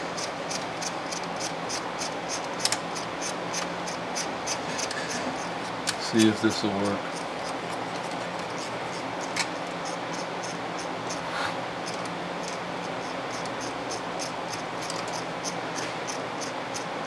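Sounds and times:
steady hum and hiss: 0.0 - 17.0
brief scrape: 11.3 - 11.6.

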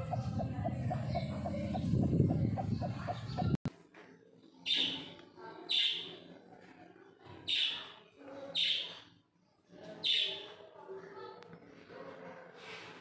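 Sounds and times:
chick peeping: 0.0 - 3.6
hen clucking: 0.0 - 3.6.

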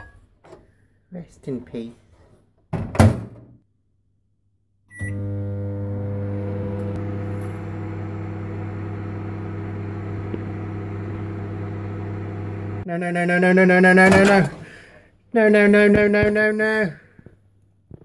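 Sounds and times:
microwave humming: 4.9 - 12.9.

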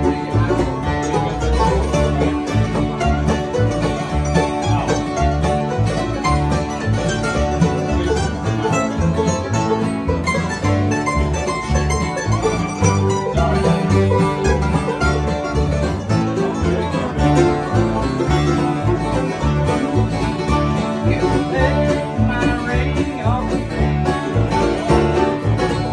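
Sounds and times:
acoustic guitars strumming: 0.0 - 25.9
banjo picking: 0.0 - 25.9
mandolin: 0.0 - 25.9
upright bass low notes: 0.0 - 25.9.

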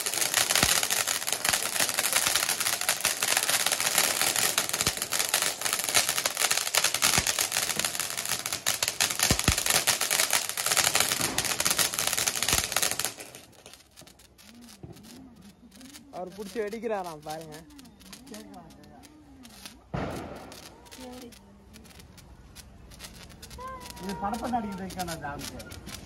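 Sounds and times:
loud firecracker pops: 0.0 - 18.9, 19.5 - 21.3
firecracker crackling: 0.0 - 26.0.

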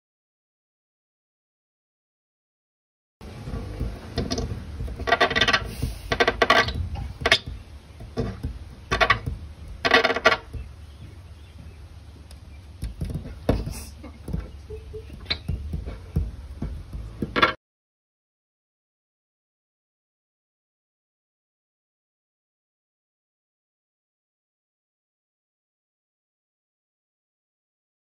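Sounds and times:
sharp knocks: 3.4 - 11.8, 12.8 - 17.6
puppy's tongue squeaking on glass: 5.1 - 7.6, 13.6 - 15.8.

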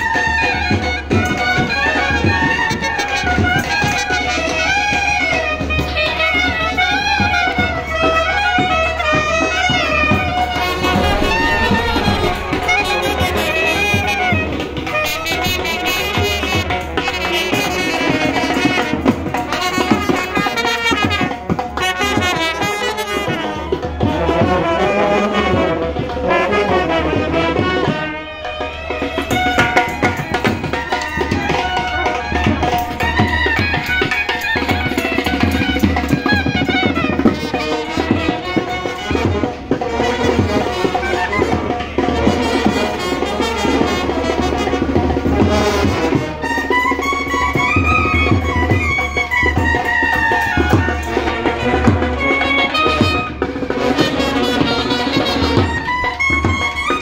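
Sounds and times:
drums: 0.0 - 57.0
trumpets and clarinets melody: 29.6 - 57.0.

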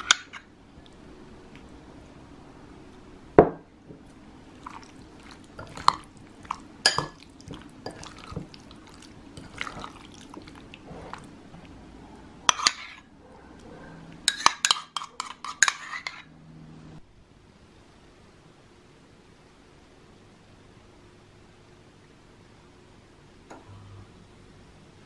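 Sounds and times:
spoon stirring thick sauce: 4.0 - 11.8, 12.5 - 13.1, 14.2 - 16.2
spoon clinking against glass bowl: 6.8 - 8.2.

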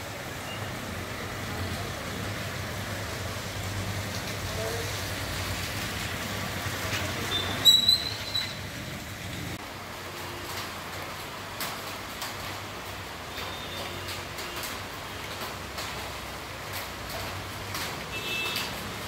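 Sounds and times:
low traffic rumble: 0.0 - 19.0
rain on wet street: 0.0 - 19.0.

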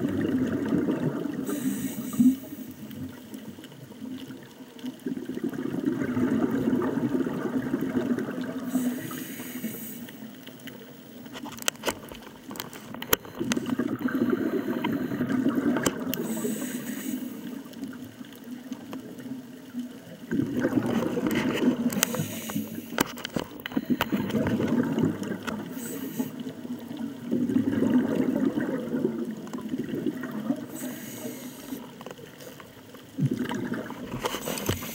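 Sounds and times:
exhaled bubbles underwater: 0.0 - 11.2, 12.6 - 34.9
regulator hiss: 1.4 - 3.0, 8.6 - 11.2, 16.2 - 17.7, 22.0 - 23.0, 25.6 - 26.5, 30.7 - 31.9.

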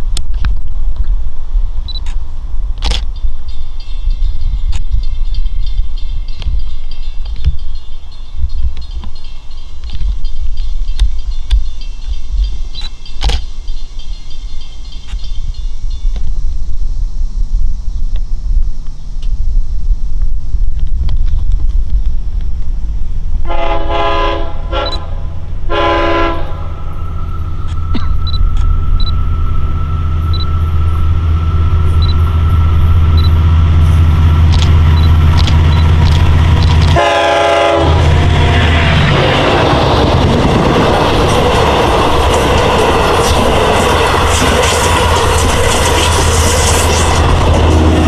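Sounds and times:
diesel engine rumble: 0.0 - 48.0
train wheel and rail noise: 0.0 - 48.0
train horn blasts: 23.4 - 35.0, 36.9 - 39.7, 46.8 - 48.0.

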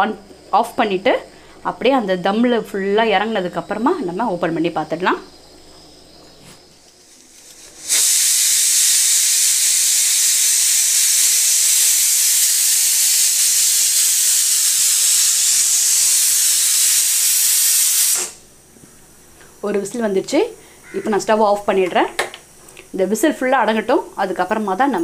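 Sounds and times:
pressure cooker steam hissing: 6.9 - 18.5.

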